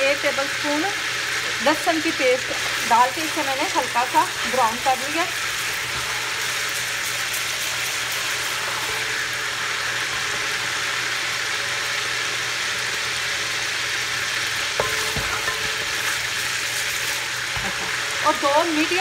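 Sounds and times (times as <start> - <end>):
paste sizzling in hot oil: 0.0 - 19.0
wooden spoon stirring: 2.4 - 9.2.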